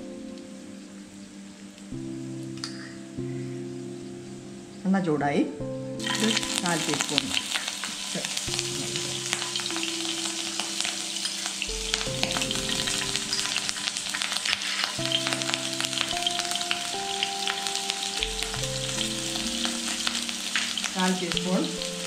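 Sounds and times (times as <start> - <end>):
oil sizzling in a wok: 6.0 - 22.0.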